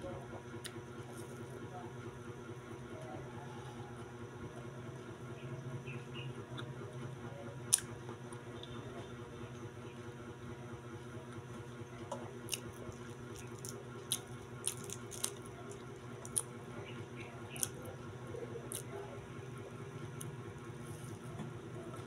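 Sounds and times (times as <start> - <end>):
close-up chewing: 12.2 - 22.0.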